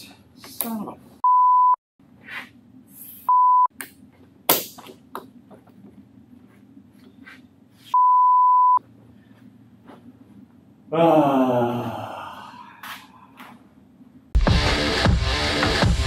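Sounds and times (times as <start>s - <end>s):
censor bleeps: 1.2s - 1.8s, 8.0s - 8.8s
faint shuffling: 5.4s - 8.0s, 8.8s - 10.7s.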